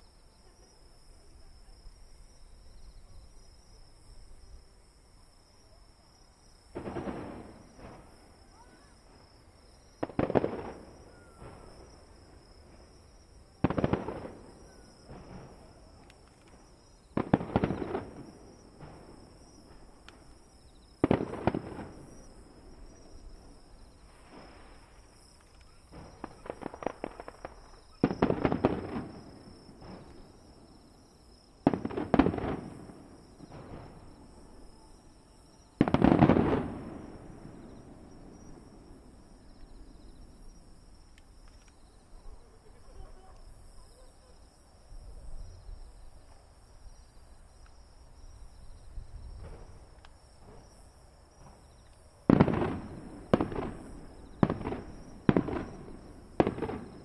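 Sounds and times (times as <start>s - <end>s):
fireworks bangs: 6.7s - 9.3s, 9.9s - 30.7s, 31.4s - 40.7s, 49.1s - 57.0s
fireworks crackling: 6.7s - 9.3s, 9.9s - 30.6s, 31.4s - 44.1s, 51.4s - 57.0s.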